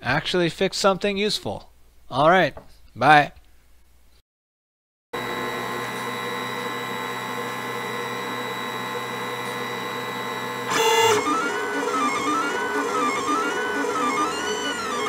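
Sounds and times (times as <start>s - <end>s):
cooling fans whirring: 5.2s - 15.0s
printer motors whining: 5.2s - 15.0s.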